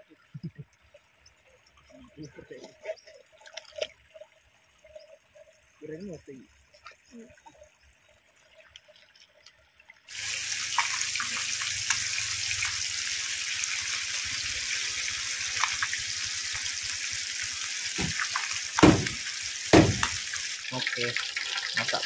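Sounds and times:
fish deep-frying in oil: 6.6 - 22.0
low thuds: 18.8 - 19.2, 19.8 - 20.2.

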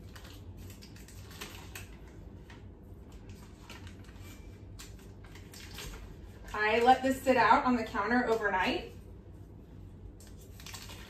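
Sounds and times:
paper wrapper crinkling: 0.0 - 6.6, 10.1 - 11.0
steady low hum: 0.0 - 11.0.

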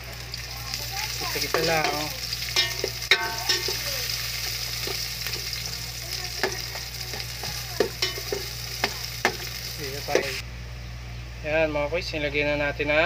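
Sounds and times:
food sizzling in a pot: 0.0 - 10.4
low hum: 0.0 - 11.4
utensil scraping a pot: 1.3 - 10.4.

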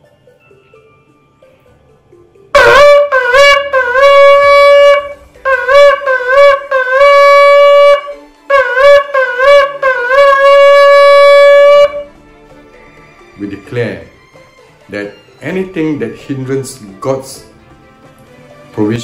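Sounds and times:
shofar blasts: 2.6 - 12.2.

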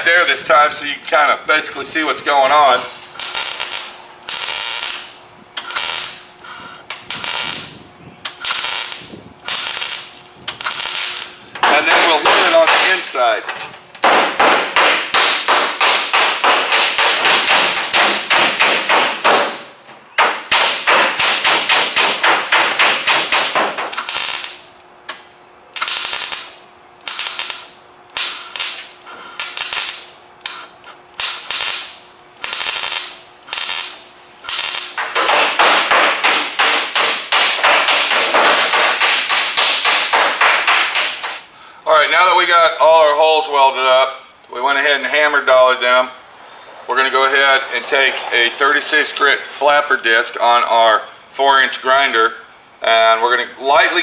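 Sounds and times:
crackling welding bursts: 1.8 - 41.6
hammer tapping on sheet steel: 14.0 - 19.6, 20.2 - 23.9, 35.0 - 41.4.

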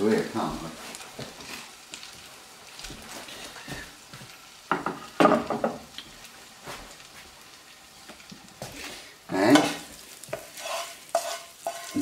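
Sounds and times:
oil sizzling in frying pan: 0.0 - 12.0
plate clattering on grates: 10.4 - 12.0.

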